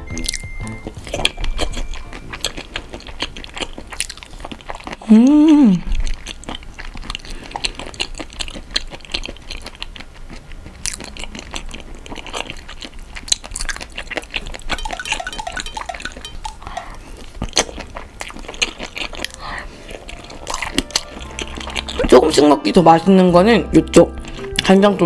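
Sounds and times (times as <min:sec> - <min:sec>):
wet chewing mouth clicks: 0:00.1 - 0:22.4.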